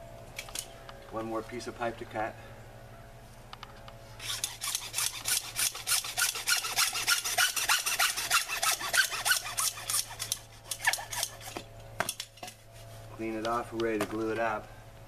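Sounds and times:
hacksaw cutting plastic pipe: 4.2s - 11.6s.

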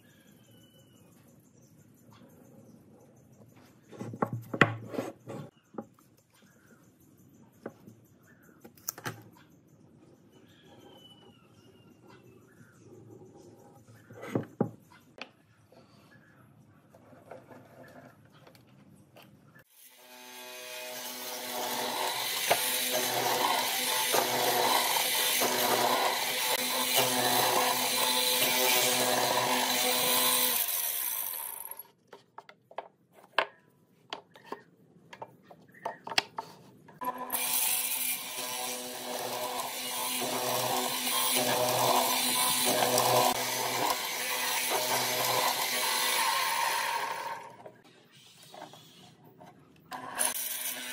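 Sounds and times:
mortiser cutting wood: 19.8s - 31.8s, 37.0s - 47.7s, 49.9s - 50.9s.

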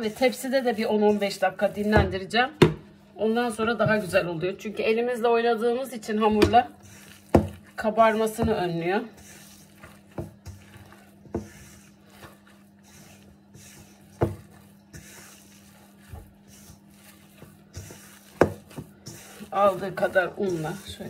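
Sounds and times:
hands kneading dough: 0.0s - 21.0s.

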